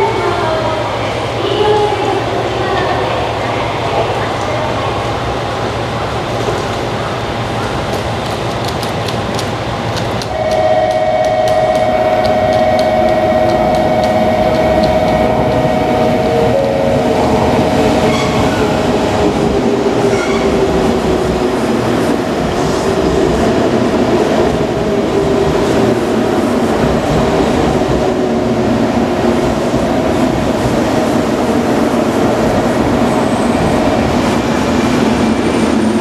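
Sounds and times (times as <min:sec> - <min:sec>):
electric train whine: 0:10.2 - 0:36.0.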